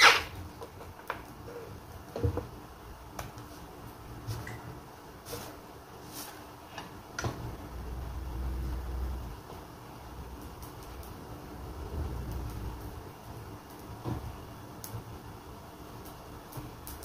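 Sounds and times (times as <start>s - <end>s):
low steady rumble: 7.4s - 15.5s.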